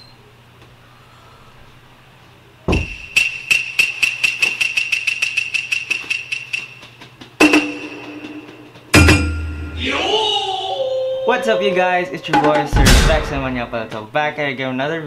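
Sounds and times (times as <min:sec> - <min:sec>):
ringing metallic strikes: 0:07.4 - 0:13.8
low hit: 0:12.4 - 0:13.7.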